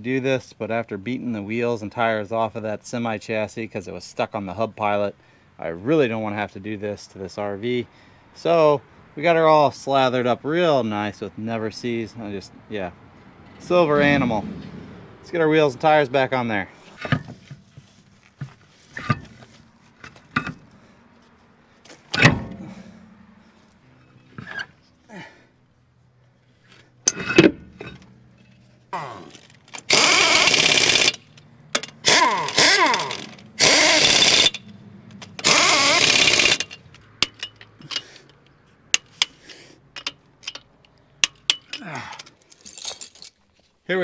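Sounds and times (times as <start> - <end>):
metallic clunks and scrapes: 13.4 - 15.4, 16.5 - 25.0, 26.3 - 29.9
impact wrench hammering: 22.2 - 23.4, 29.8 - 38.0, 39.0 - 39.4
torque wrench clicks: 29.8 - 39.4.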